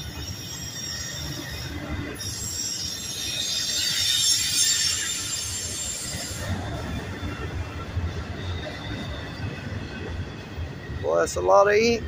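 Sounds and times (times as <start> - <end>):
high wheel squeal: 0.0 - 7.5
train wheels rumbling on rails: 0.0 - 12.0.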